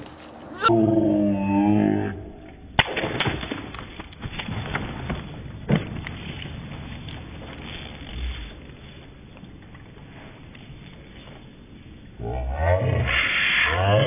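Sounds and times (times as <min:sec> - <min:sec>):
deep wavering voice-like cry: 0:00.5 - 0:02.6, 0:12.2 - 0:14.0.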